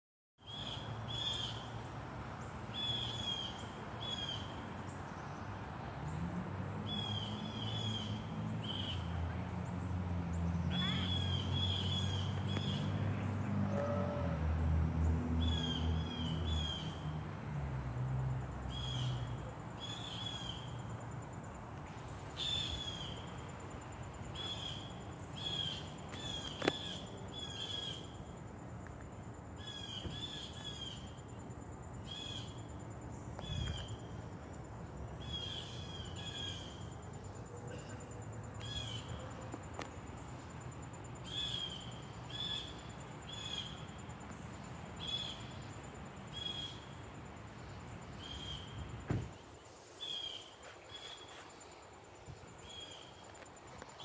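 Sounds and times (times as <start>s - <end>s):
blue jay calling: 41.2s - 43.9s.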